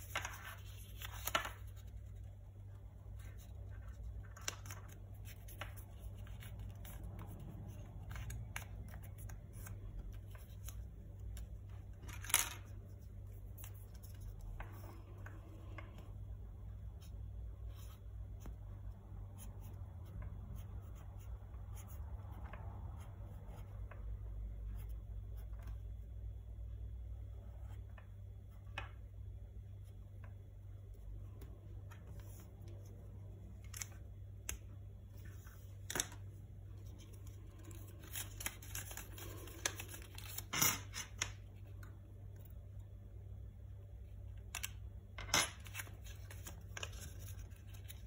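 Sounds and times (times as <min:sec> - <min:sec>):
paper rustling and creasing: 0:00.0 - 0:16.1, 0:31.3 - 0:41.8, 0:44.5 - 0:48.0.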